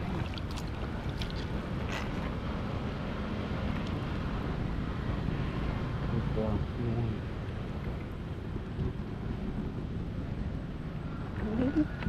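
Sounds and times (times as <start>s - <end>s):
hands splashing in shallow water: 0.0s - 2.4s.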